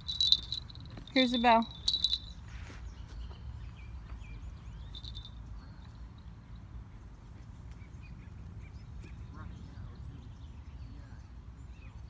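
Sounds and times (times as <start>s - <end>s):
bite bell jingling: 0.0s - 2.4s, 4.9s - 5.5s
bird chirps: 0.0s - 6.6s.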